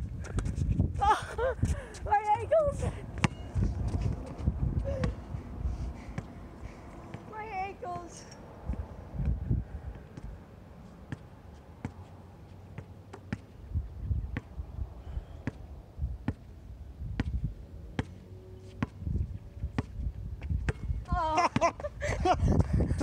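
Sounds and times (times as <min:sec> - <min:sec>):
wind rumbling on microphone: 0:00.0 - 0:10.5, 0:13.5 - 0:17.9, 0:18.8 - 0:23.0
basketball bouncing on hard court: 0:03.2 - 0:03.5, 0:15.4 - 0:15.6, 0:17.2 - 0:17.4, 0:18.8 - 0:19.0, 0:19.7 - 0:20.9.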